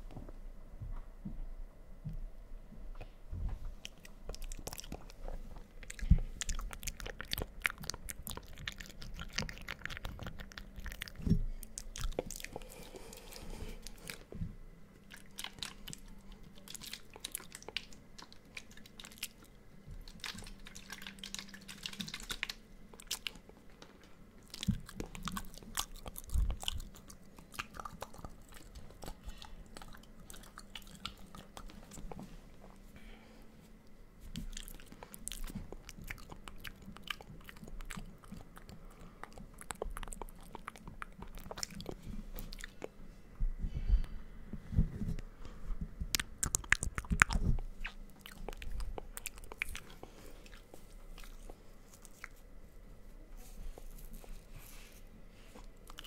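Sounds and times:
mouth clicks and smacks: 46.0 - 52.4.

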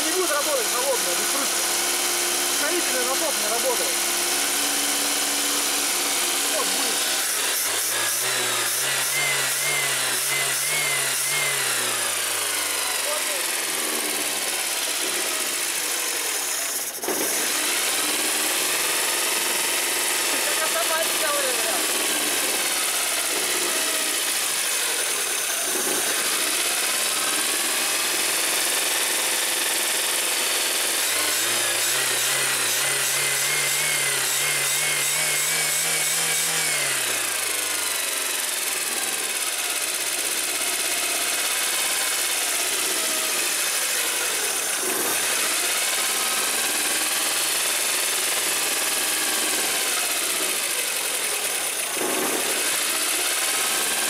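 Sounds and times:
car engine revving: 0.0 - 14.2, 31.0 - 37.6.

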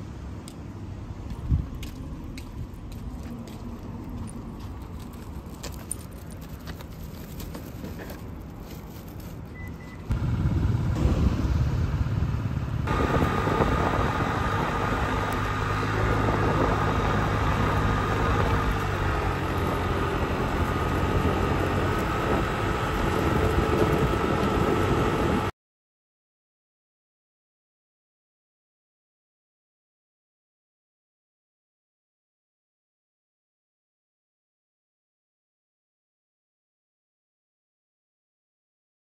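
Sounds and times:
car engine and road noise: 0.0 - 25.5.

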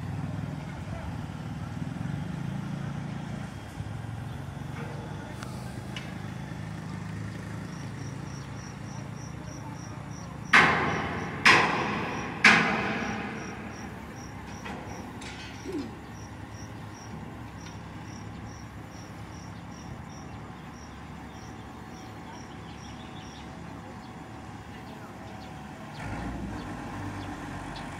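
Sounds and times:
crane engine running: 0.0 - 27.9
ringing metallic bangs: 7.7 - 20.3.

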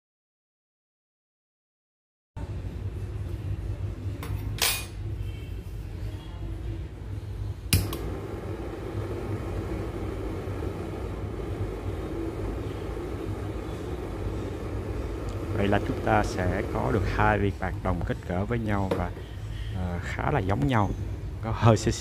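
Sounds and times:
low background hum: 2.4 - 22.0
torch lighter clicks: 7.7 - 8.1
torch flame rushing: 7.8 - 17.6.

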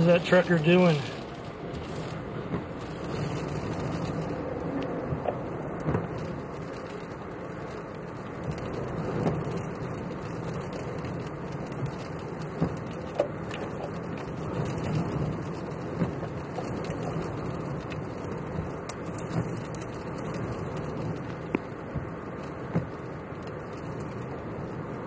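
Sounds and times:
storm wind and rain: 0.0 - 25.0
vehicle road noise: 0.0 - 25.0
sharp taps against vehicle: 2.4 - 2.8, 5.1 - 6.2, 12.5 - 14.0, 21.5 - 23.0.

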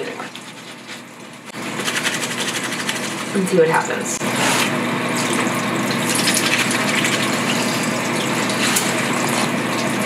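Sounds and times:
splashing of hand scrubbing: 0.2 - 3.3, 5.2 - 10.0
tap water running into sink: 5.2 - 10.0.

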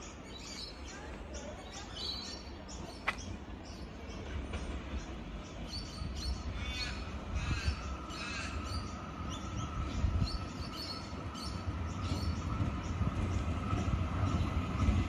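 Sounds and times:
electric train rumbling: 0.0 - 15.0.

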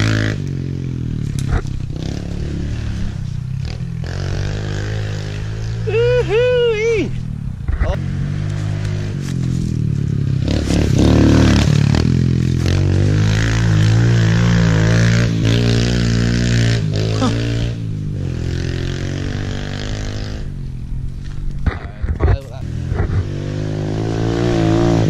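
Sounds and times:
dirt bike engine revving: 0.0 - 20.6, 22.5 - 25.0.

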